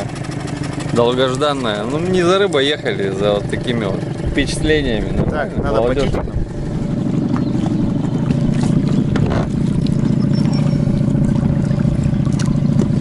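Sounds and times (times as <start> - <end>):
outboard motor running: 0.0 - 13.0.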